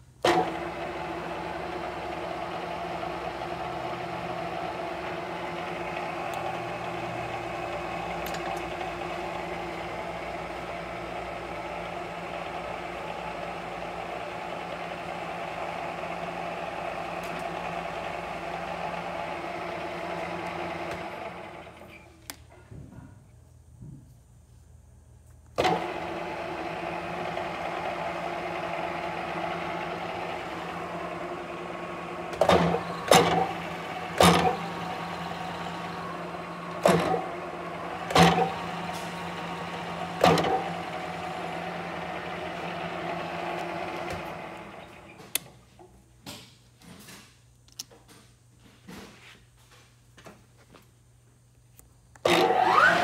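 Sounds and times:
drill motor humming: 0.2 - 22.0, 25.6 - 45.3, 52.2 - 53.0.

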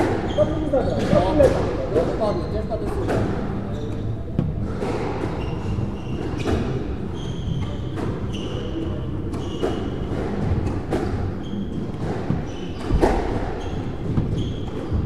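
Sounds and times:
shoes squeaking on wooden floor: 0.0 - 15.0
squash ball thuds: 0.9 - 2.2, 9.3 - 15.0.

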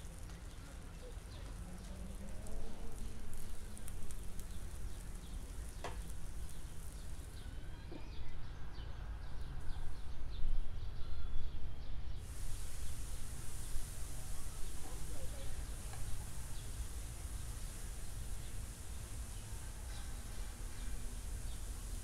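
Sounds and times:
crackling pops: 0.0 - 7.4, 12.3 - 22.0
vegetables sizzling in frying pan: 0.0 - 7.6, 12.2 - 22.0.

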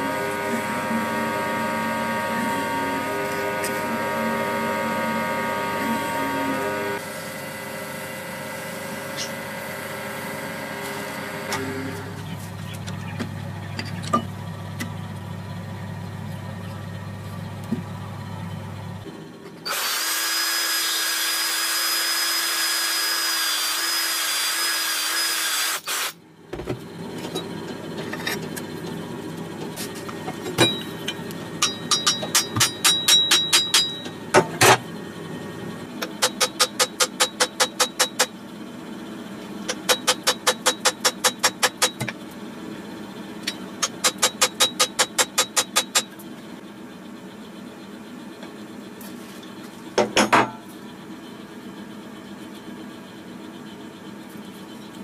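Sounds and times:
wood lathe humming: 0.0 - 12.2
cordless drill running: 19.7 - 26.2.

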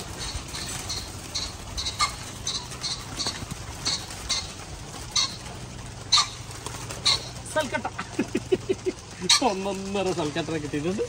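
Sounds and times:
small animal chirping: 0.1 - 4.5.

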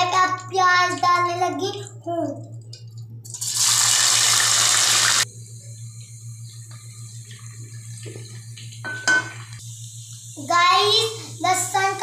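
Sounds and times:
onions sizzling in hot oil: 3.4 - 5.2
low hum: 5.1 - 11.8.

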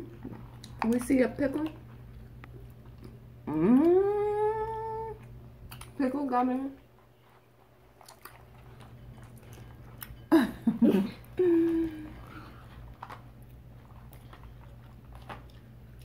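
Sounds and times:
child chewing candy: 0.0 - 6.0, 6.8 - 16.0
child humming: 3.5 - 5.2, 11.4 - 12.2
child giggling: 10.3 - 12.1.

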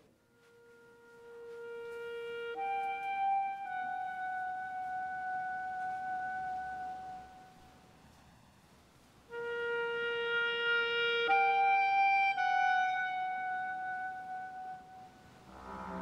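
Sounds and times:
sustained instrument slow notes: 13.7 - 16.0.

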